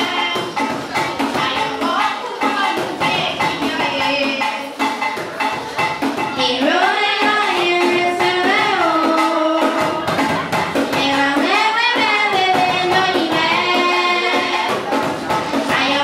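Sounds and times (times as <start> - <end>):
girl singing into microphone: 0.0 - 4.7, 6.4 - 16.0
drums beaten with sticks: 0.0 - 16.0.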